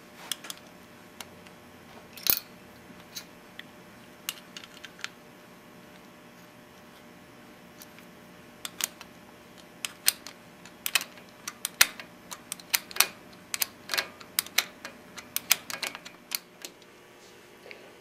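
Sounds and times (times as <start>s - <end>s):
small metal clicks and taps: 8.6s - 16.9s.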